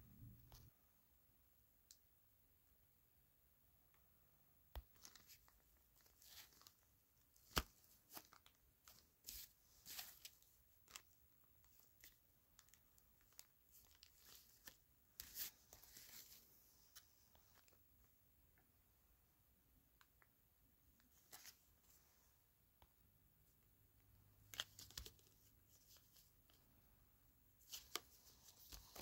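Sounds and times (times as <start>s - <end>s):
plastic packaging crinkling: 7.4s - 11.0s.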